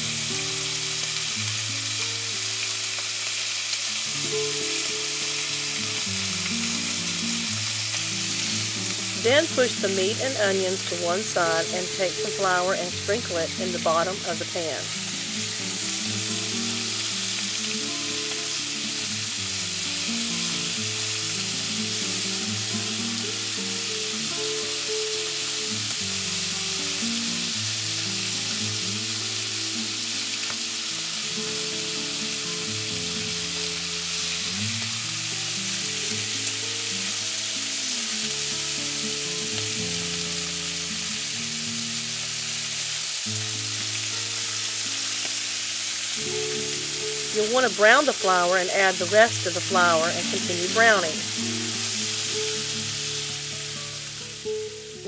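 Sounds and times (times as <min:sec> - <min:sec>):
meat sizzling in a frying pan: 0:00.0 - 0:55.0
soft background music: 0:00.0 - 0:55.0.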